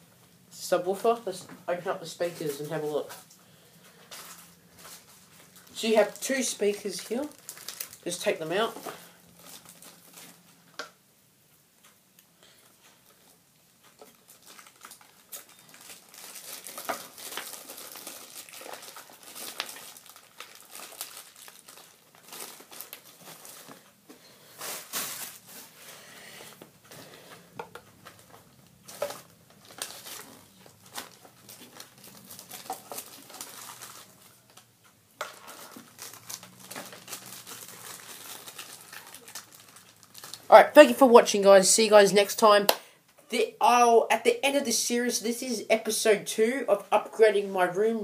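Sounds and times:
plastic packaging crinkling: 0:03.9 - 0:10.5, 0:13.9 - 0:25.9, 0:27.0 - 0:41.6.

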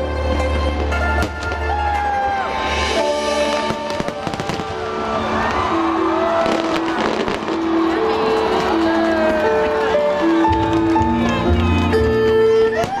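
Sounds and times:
loud music with long held notes: 0:00.0 - 0:13.0
fireworks bursting with sharp bangs: 0:03.4 - 0:05.6, 0:06.3 - 0:07.6, 0:12.7 - 0:13.0.

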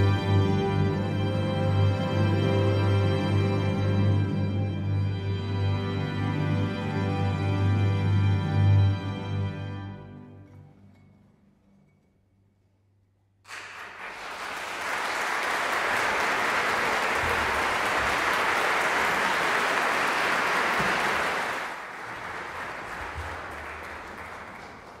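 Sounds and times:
audience applauding: 0:13.5 - 0:25.0.

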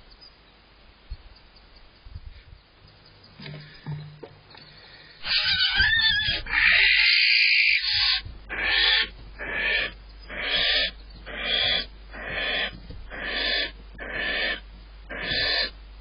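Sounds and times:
barn owl rasping hiss: 0:06.5 - 0:15.8.

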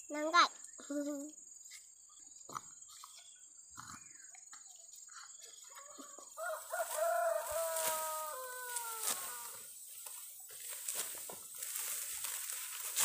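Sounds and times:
rooster crowing: 0:05.8 - 0:09.7.

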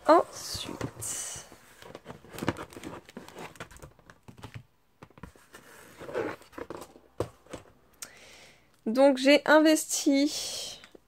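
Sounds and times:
cardboard envelope rustling: 0:01.4 - 0:07.7.

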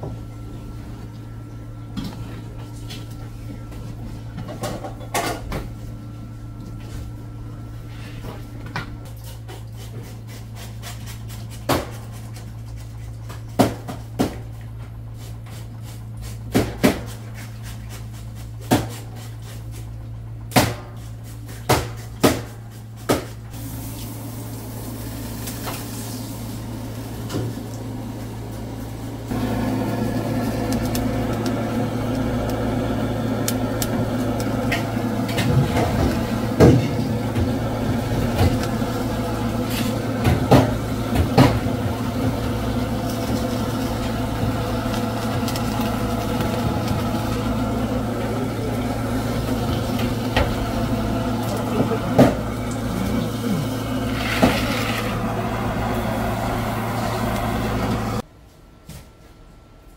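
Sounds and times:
butane torch hissing: 0:23.5 - 0:58.2.

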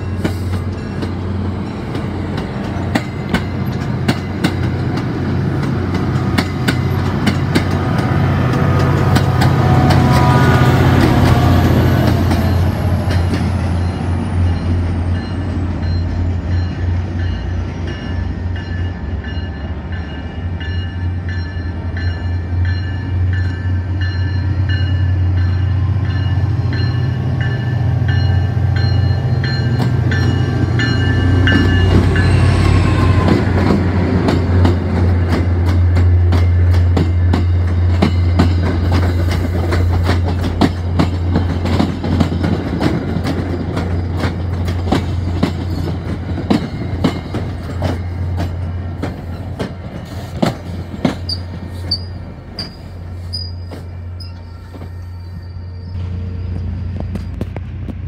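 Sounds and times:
crossing bell ringing: 0:00.0 - 0:04.8, 0:06.4 - 0:34.0, 0:35.9 - 0:41.8, 0:43.5 - 0:49.6
diesel locomotive engine drone: 0:00.0 - 0:58.0
wheels clicking over rail joints: 0:01.9 - 0:10.3, 0:33.3 - 0:54.8
train brakes squealing: 0:09.9 - 0:19.6, 0:45.0 - 0:57.6.

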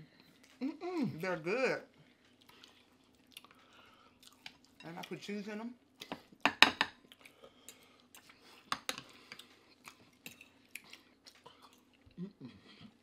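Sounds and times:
close chewing: 0:01.9 - 0:05.1, 0:07.0 - 0:13.0.

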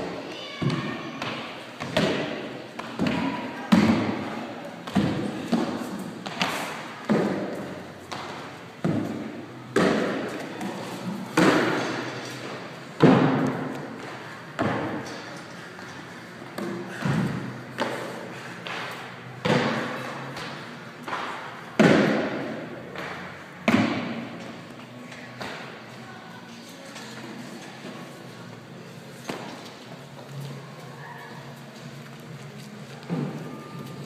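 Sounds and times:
heavy thuds echoing in a hall: 0:00.0 - 0:15.3, 0:16.4 - 0:24.7.

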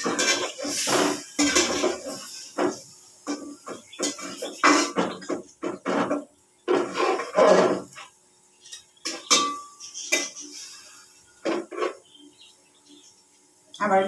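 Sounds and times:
metal ladle scraping a pot: 0:06.7 - 0:08.1.

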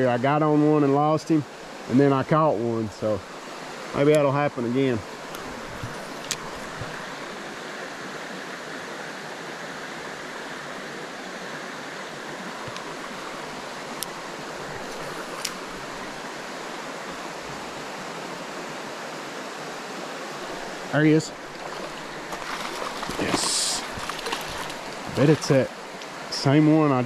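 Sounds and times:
creek water rushing: 0:00.0 - 0:27.0.

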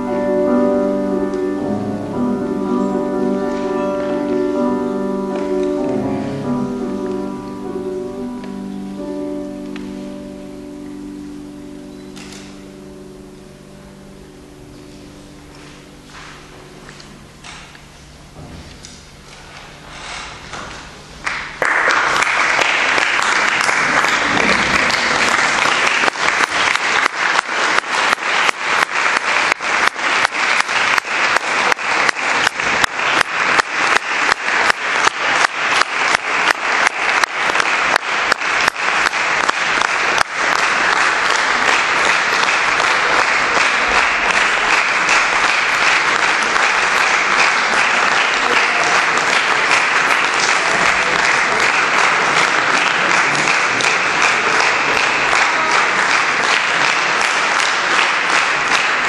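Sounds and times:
audience applauding: 0:21.2 - 0:59.0.

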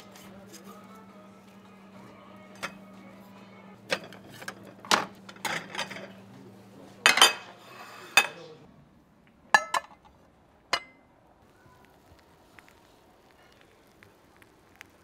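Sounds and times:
dishes and cutlery clattering: 0:02.6 - 0:02.8, 0:03.9 - 0:06.2, 0:07.0 - 0:08.5, 0:09.5 - 0:10.1, 0:10.7 - 0:11.0.

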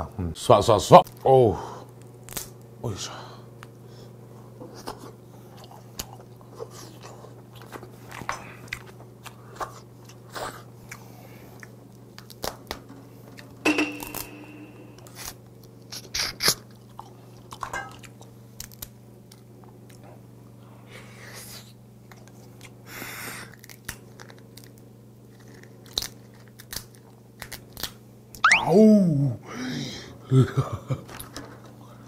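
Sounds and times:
crab shell cracking: 0:02.0 - 0:02.6, 0:12.1 - 0:12.8, 0:18.2 - 0:19.5, 0:23.5 - 0:28.0
chewing: 0:04.7 - 0:13.6, 0:15.0 - 0:20.2, 0:22.0 - 0:22.8, 0:23.4 - 0:27.9.

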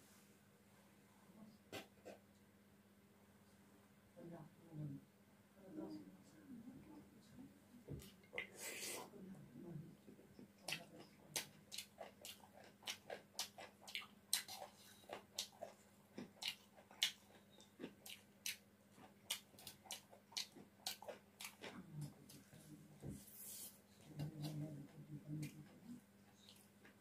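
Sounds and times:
person chewing with wet smacking: 0:10.4 - 0:22.7, 0:24.0 - 0:27.0.

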